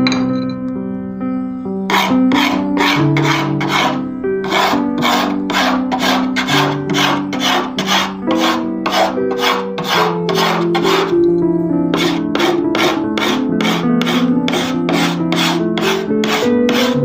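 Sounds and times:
background music: 0.0s - 17.0s
hand rasp scraping wood: 1.9s - 11.2s, 11.9s - 17.0s.

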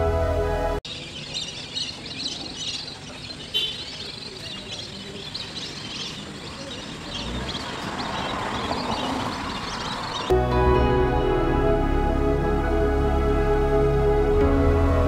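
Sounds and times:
small birds chirping: 0.8s - 10.3s.

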